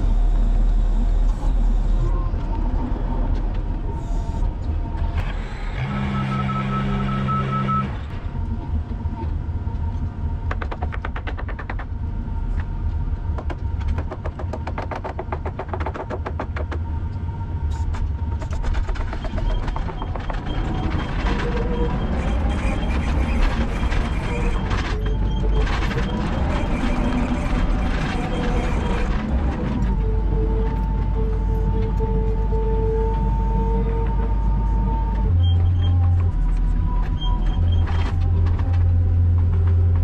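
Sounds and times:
construction machine engine rumbling: 16.2 - 40.0.

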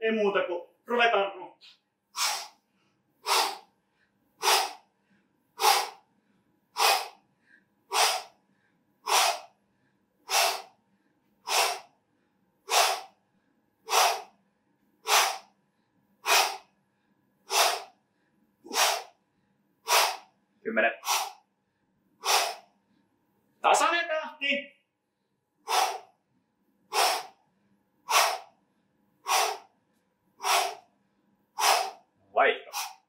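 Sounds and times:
person exhaling sharply: 2.2 - 2.6, 3.2 - 3.7, 4.4 - 4.8, 5.6 - 6.0, 6.8 - 8.4, 9.0 - 9.5, 10.3 - 10.7, 11.5 - 11.9, 12.7 - 13.2, 13.9 - 14.3, 15.0 - 15.5, 16.2 - 16.7, 17.5 - 18.0, 18.7 - 19.2, 19.9 - 20.3, 21.0 - 21.4, 22.2 - 22.7, 25.7 - 26.1, 26.9 - 27.4, 28.1 - 28.5, 29.2 - 29.7, 30.4 - 30.8, 31.6 - 32.0, 32.7 - 33.0.

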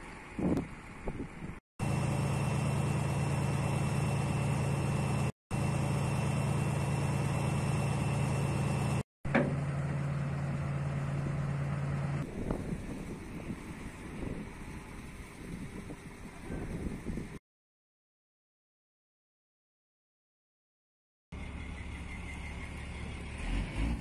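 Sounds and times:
diesel engine idling: 0.0 - 17.2.

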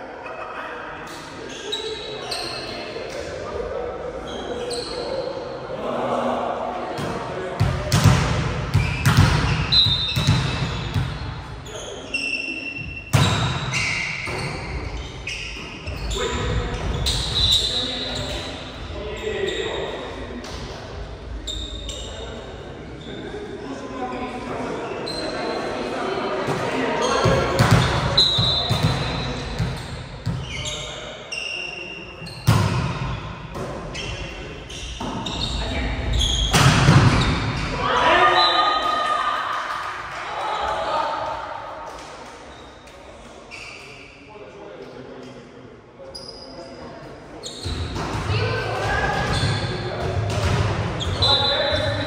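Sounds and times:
sneakers squeaking on court: 4.2 - 5.2, 8.0 - 19.8, 21.4 - 22.3, 27.0 - 37.8, 47.4 - 52.0.

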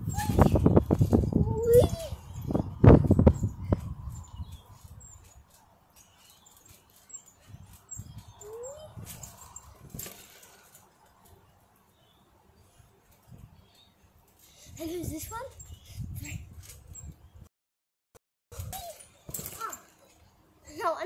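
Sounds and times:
trampoline mat thuds: 8.9 - 10.6, 18.6 - 20.0.

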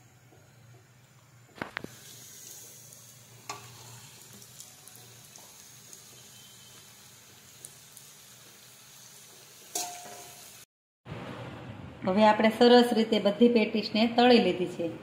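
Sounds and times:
patties deep-frying in hot oil: 0.0 - 10.7.

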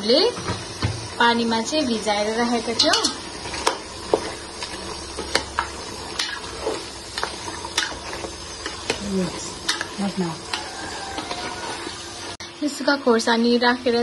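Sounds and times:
food sizzling: 0.0 - 14.0
spatula scraping a pot: 2.8 - 12.4.

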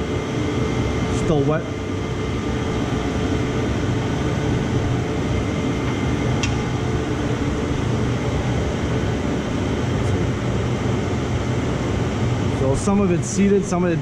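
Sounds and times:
shop machinery drone: 0.0 - 14.0.

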